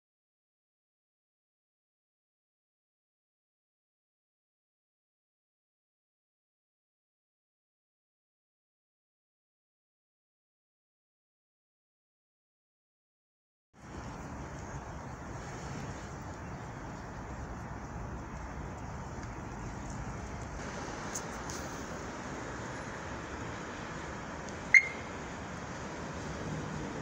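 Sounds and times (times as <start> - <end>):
low rumble and hiss: 13.8 - 27.0.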